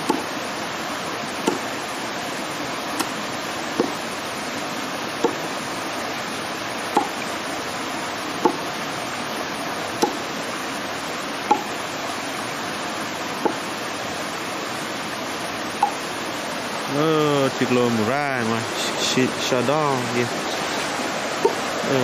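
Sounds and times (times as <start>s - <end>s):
knife chopping: 0.0s - 0.3s, 1.5s - 1.7s, 3.8s - 4.0s, 5.2s - 5.5s, 7.0s - 7.2s, 8.4s - 8.6s, 10.0s - 10.2s, 11.5s - 11.7s, 13.4s - 13.6s
stream rushing: 0.0s - 22.0s.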